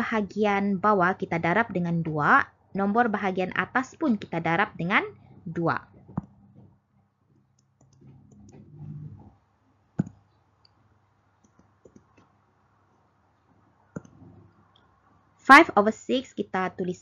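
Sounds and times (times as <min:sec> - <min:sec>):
computer mouse clicking: 0:07.6 - 0:08.7, 0:10.0 - 0:10.8, 0:11.4 - 0:13.0, 0:13.9 - 0:14.9.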